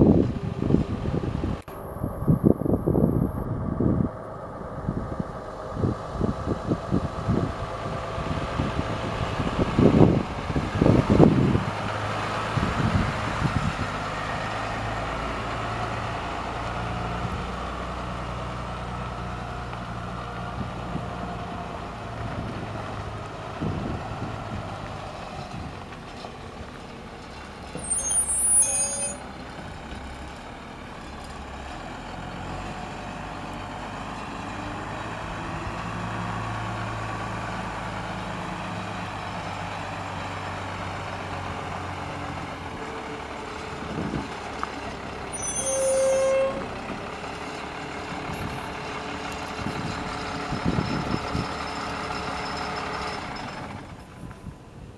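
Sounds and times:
bus engine running: 0.0 - 54.9
short high-pitched squeals: 27.8 - 29.3, 45.3 - 46.8.

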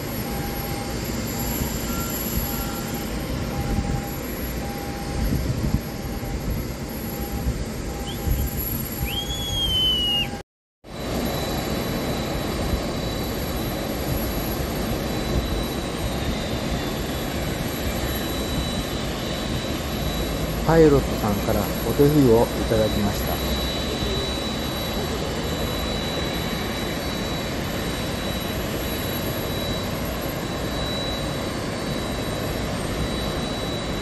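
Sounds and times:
jet engine noise: 0.0 - 34.0
brief whistle: 8.0 - 10.4.

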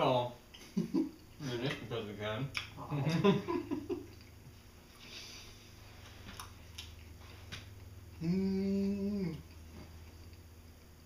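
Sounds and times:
low steady hum: 0.0 - 11.0
faint chewing: 4.0 - 10.9.

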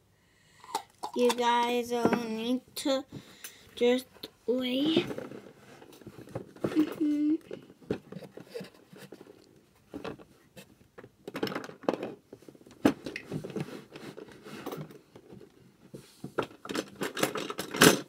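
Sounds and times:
objects scraping and rustling: 4.8 - 10.8, 11.4 - 18.0.

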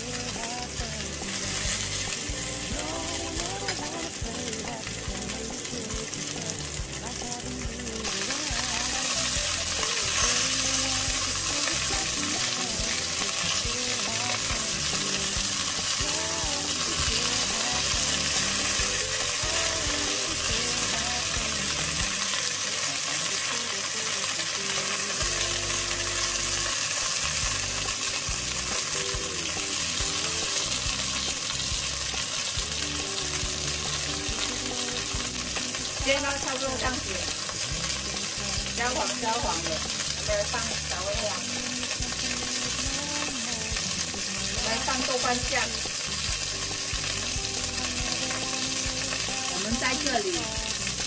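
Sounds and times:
meat sizzling in hot oil: 0.0 - 51.0.

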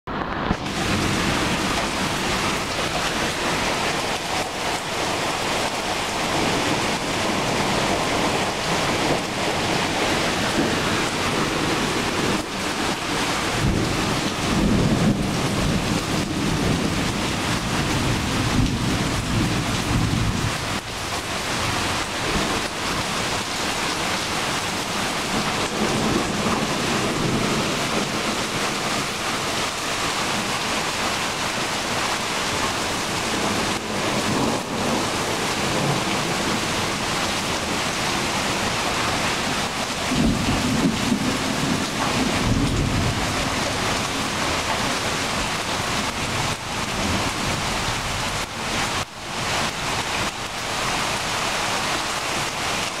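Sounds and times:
heavy rain pouring: 0.1 - 53.0
low thunder rumble: 0.2 - 20.9.

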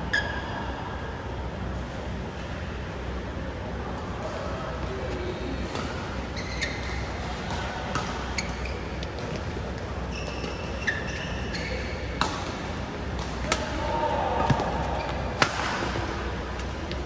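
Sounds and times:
shoes squeaking on court: 5.1 - 12.2, 14.5 - 15.4
racket hitting shuttlecock: 6.7 - 9.8, 12.1 - 17.0.

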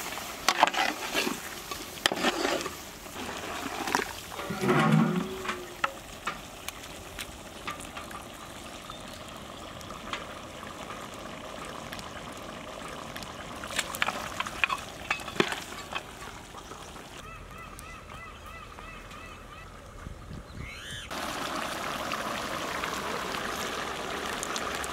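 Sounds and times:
curry sizzling and bubbling: 0.0 - 17.2, 20.7 - 24.9
metal spatula scraping pot: 0.4 - 6.0.

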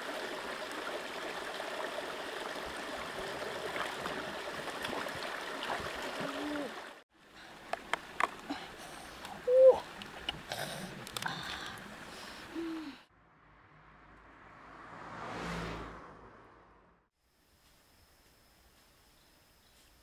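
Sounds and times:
stream running and trickling: 0.0 - 13.0.

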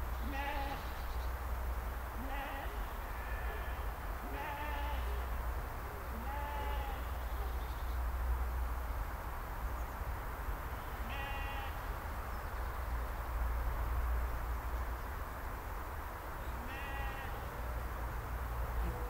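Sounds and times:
sheep bleating: 0.3 - 0.8, 2.2 - 5.1, 6.2 - 7.1, 11.1 - 11.8, 16.6 - 17.5.

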